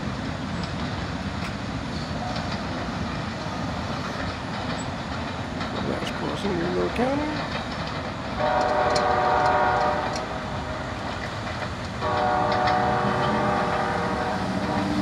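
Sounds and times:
train rumbling on rails: 0.0s - 15.0s
locomotive air horn blasts: 8.4s - 10.3s, 12.0s - 15.0s.

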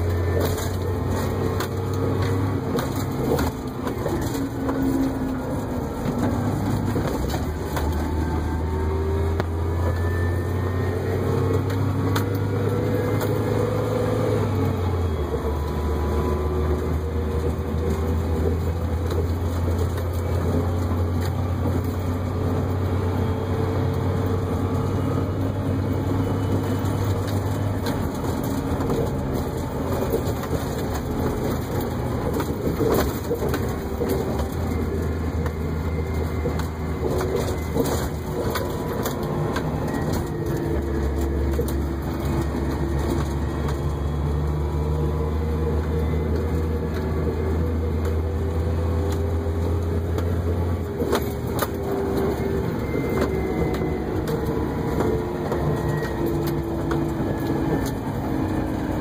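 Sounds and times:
diesel engine running: 0.0s - 59.0s
cab rattles and knocks: 26.3s - 44.0s.

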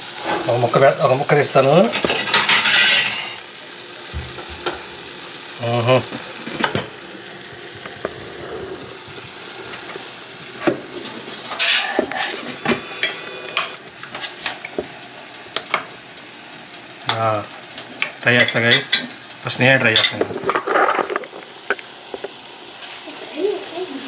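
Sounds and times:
curry sizzling in a clay pot: 0.0s - 24.0s
utensil scraping a pot: 7.8s - 14.7s.

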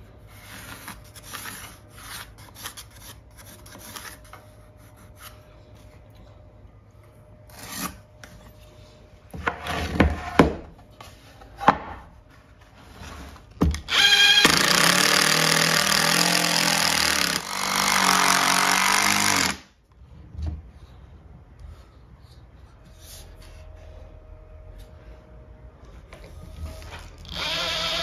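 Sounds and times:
cordless drill running: 13.9s - 19.6s, 27.2s - 28.0s.

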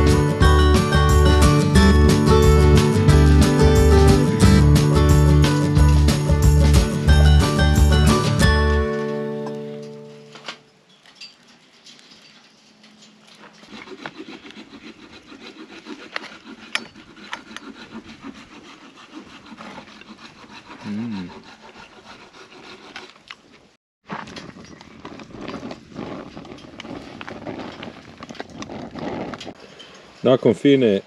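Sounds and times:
knife and fork scraping: 10.3s - 23.5s.

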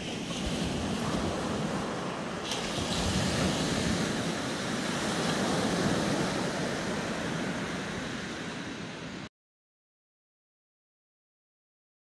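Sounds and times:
waves breaking on a beach: 0.0s - 9.3s.

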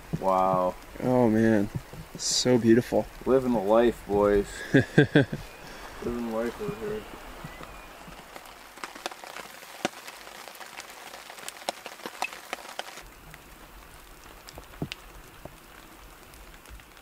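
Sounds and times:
snow pellets ticking on tarp: 0.0s - 13.4s
light hiss: 0.0s - 17.0s.

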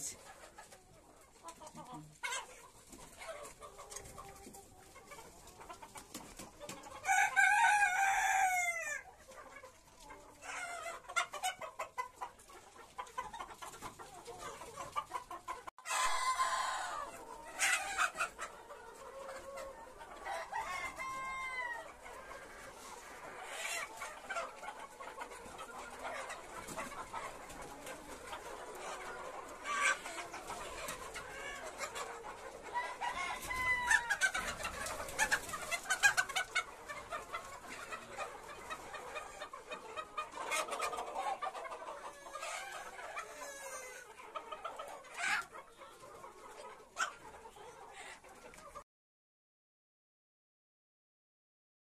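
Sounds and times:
chickens clucking and calling: 0.0s - 48.8s
rooster crowing: 7.1s - 9.0s, 15.8s - 17.1s.

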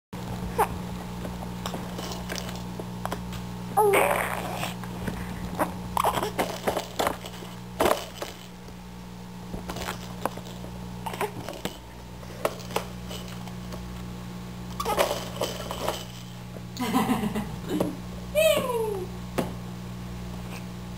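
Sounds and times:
steady low hum: 0.2s - 20.9s
baby babbling: 3.8s - 4.8s
baby squealing: 3.8s - 4.8s.

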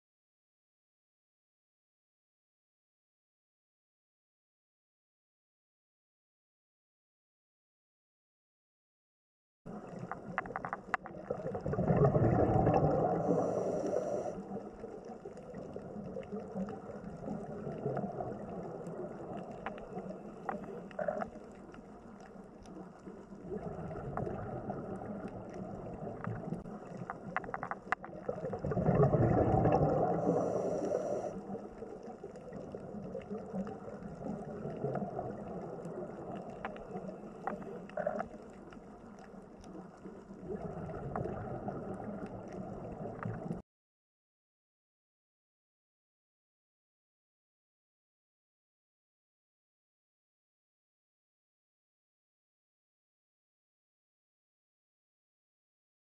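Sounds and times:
faint clicks: 9.7s - 11.6s, 12.7s - 29.0s, 29.7s - 43.6s
low gurgling rumble: 9.7s - 43.6s
muffled underwater wash: 9.7s - 43.6s.

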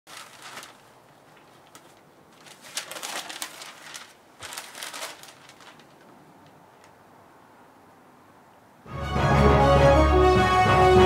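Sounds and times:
newspaper pages rustling: 0.1s - 7.0s.

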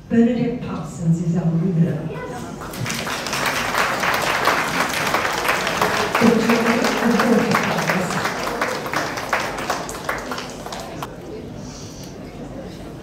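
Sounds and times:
audience applauding: 2.6s - 11.1s.

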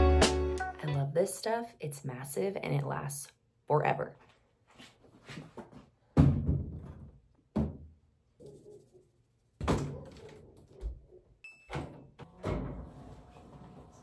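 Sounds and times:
sharp knocks and thuds: 6.2s - 7.9s.

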